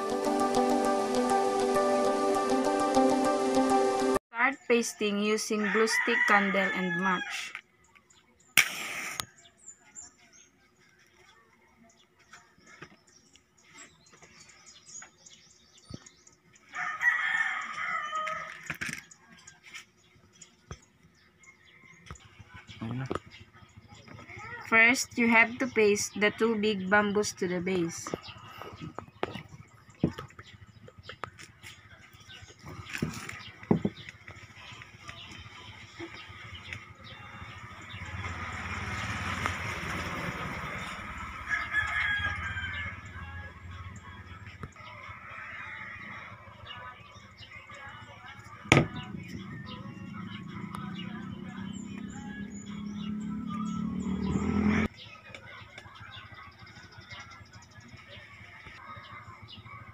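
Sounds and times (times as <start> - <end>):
rooster crowing: 5.5 - 7.6, 16.7 - 18.7, 40.8 - 43.5, 44.7 - 46.6
broad hiss: 8.6 - 9.3.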